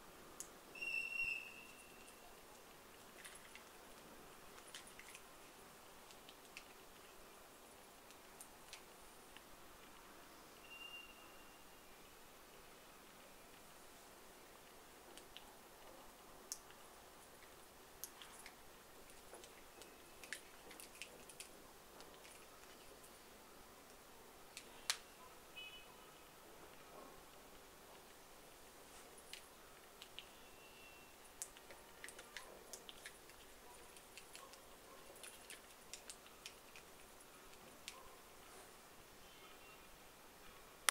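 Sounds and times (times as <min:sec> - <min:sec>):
low steady hiss: 0:00.0 - 0:40.9
faint sharp plastic clicks: 0:08.0 - 0:10.2, 0:14.6 - 0:23.2, 0:23.8 - 0:25.1, 0:29.2 - 0:30.5, 0:31.3 - 0:38.2
faint plastic clicks and taps: 0:31.4 - 0:38.1.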